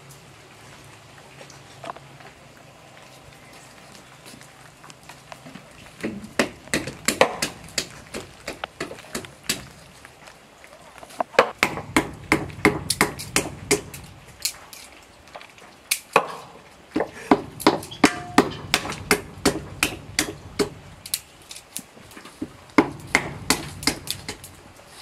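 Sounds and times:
walnuts cracking with stick knocks: 0:06.0 - 0:10.0, 0:11.2 - 0:14.9, 0:15.9 - 0:24.6.

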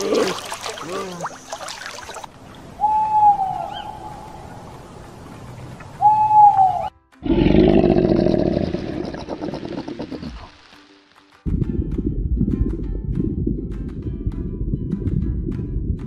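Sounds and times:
owl hooting: 0:02.8 - 0:04.4, 0:06.0 - 0:06.9
low pulsing rumble: 0:11.5 - 0:16.0.

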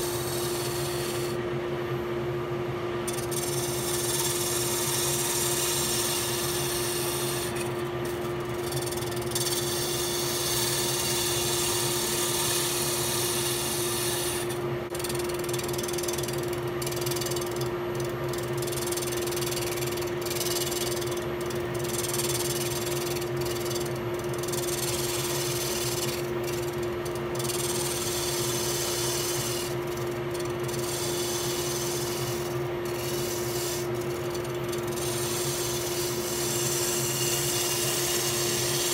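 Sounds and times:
wood lathe humming: 0:00.0 - 0:01.4, 0:03.1 - 0:38.9
gouge cutting wood hiss: 0:30.8 - 0:34.0.

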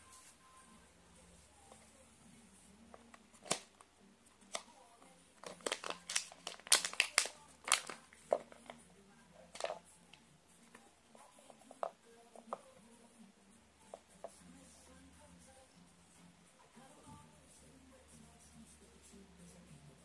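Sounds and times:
plastic bag crinkling and tearing: 0:05.4 - 0:08.7.

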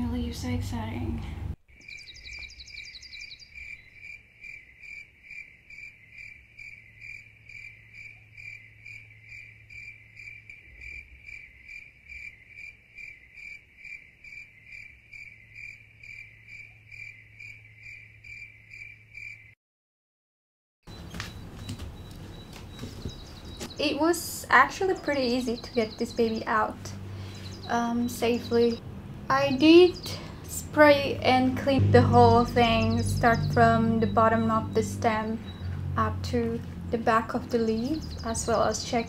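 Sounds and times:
cricket chirping: 0:01.7 - 0:19.5
low steady hum: 0:20.9 - 0:39.0.

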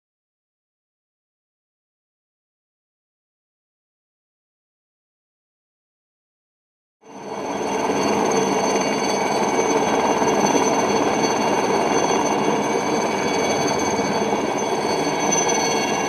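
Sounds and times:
helicopter hovering: 0:07.0 - 0:16.0
high whine: 0:07.1 - 0:16.0.

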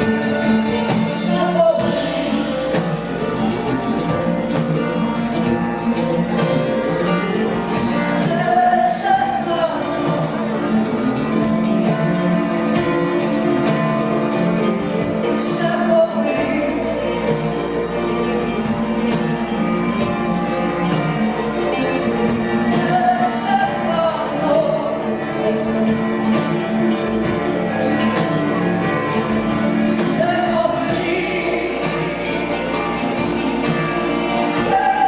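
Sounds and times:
live band music: 0:00.0 - 0:35.0
woman singing into a microphone: 0:00.9 - 0:02.6, 0:07.2 - 0:11.0, 0:15.0 - 0:18.6, 0:22.7 - 0:26.4, 0:29.5 - 0:35.0.

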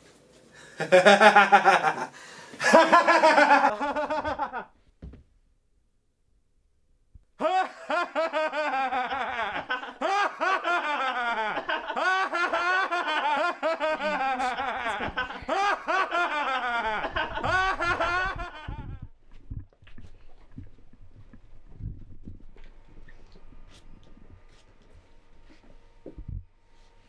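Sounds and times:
person laughing hard: 0:00.8 - 0:04.7, 0:07.4 - 0:19.1.

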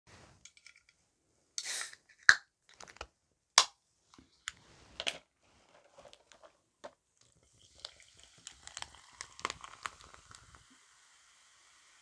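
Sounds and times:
can opening hiss: 0:01.6 - 0:02.4, 0:08.4 - 0:12.0.

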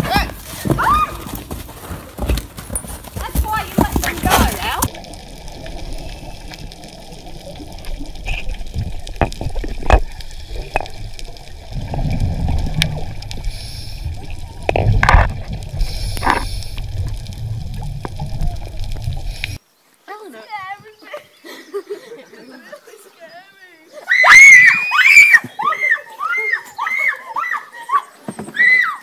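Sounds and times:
underwater clicks and knocks: 0:03.9 - 0:13.4, 0:14.2 - 0:19.6
underwater rumble of moving water: 0:04.5 - 0:19.6.

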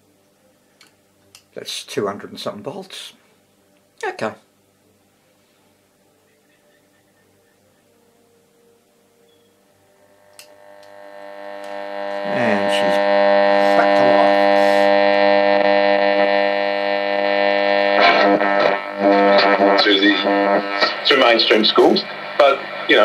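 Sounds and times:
radio loudspeaker hum: 0:09.9 - 0:23.0.

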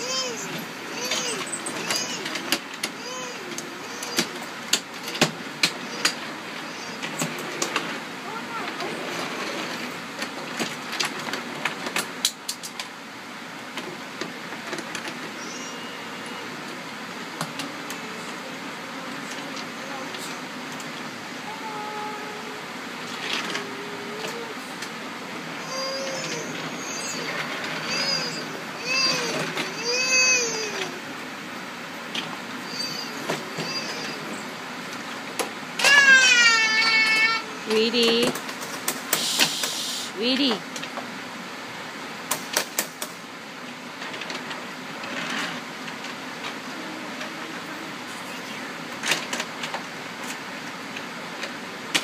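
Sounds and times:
child's voice: 0:00.0 - 0:04.5, 0:08.2 - 0:09.2, 0:17.4 - 0:20.6, 0:21.4 - 0:25.0, 0:25.6 - 0:31.1, 0:46.6 - 0:48.8
wooden toy trains clicking: 0:00.0 - 0:12.9, 0:23.0 - 0:31.0, 0:32.1 - 0:34.3, 0:34.9 - 0:41.1, 0:42.3 - 0:52.0
steady background hum: 0:00.0 - 0:52.0
store background noise: 0:37.4 - 0:40.8.

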